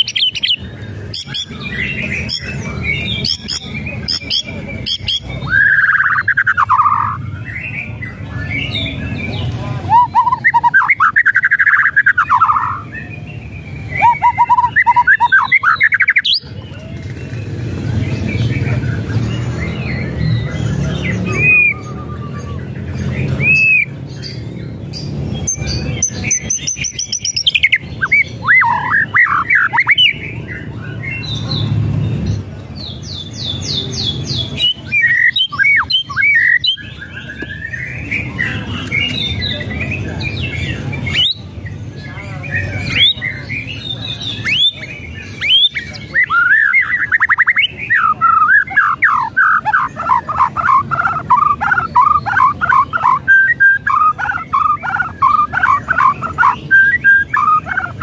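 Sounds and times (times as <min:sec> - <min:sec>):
bird singing whistles: 0:09.9 - 0:16.5.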